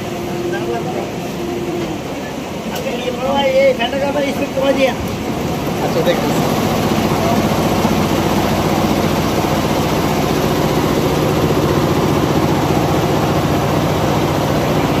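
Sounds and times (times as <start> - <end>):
embroidery machine clatter: 0.0 - 15.0.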